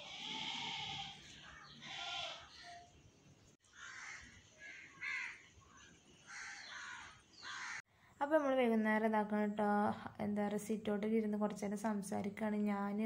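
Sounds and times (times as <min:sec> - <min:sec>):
crows cawing: 0:00.0 - 0:02.5, 0:03.6 - 0:05.5, 0:06.3 - 0:07.8.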